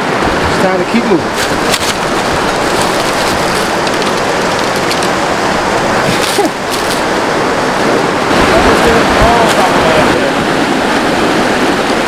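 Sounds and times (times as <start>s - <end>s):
creek rushing over rocks: 0.0s - 12.0s
footsteps in dry leaves: 1.3s - 4.9s.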